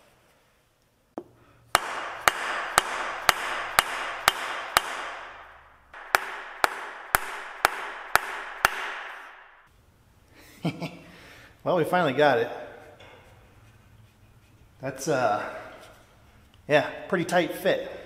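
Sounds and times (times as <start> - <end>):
hammer striking metal shaft: 1.7 - 9.7.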